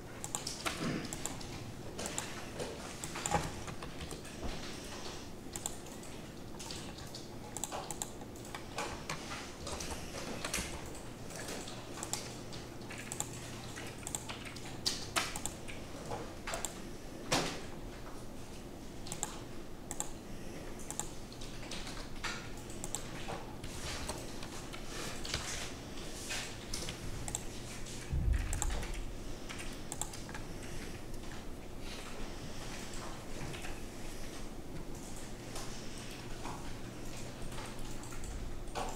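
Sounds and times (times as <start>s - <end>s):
low steady hum: 0.0s - 38.9s
keyboard and mouse clicking: 0.2s - 15.8s, 16.4s - 16.8s, 19.0s - 20.2s, 20.8s - 23.4s, 26.7s - 30.5s, 34.9s - 38.9s.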